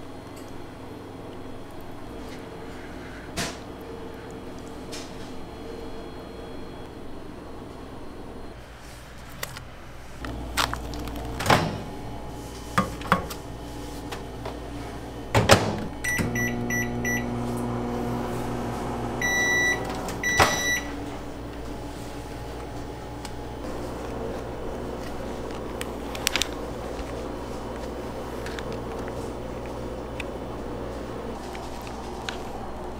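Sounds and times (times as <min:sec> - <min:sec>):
microwave humming: 0:09.3 - 0:32.9
microwave long beep: 0:16.0 - 0:21.9
microwave keypad beeps: 0:16.1 - 0:17.3, 0:19.2 - 0:21.0.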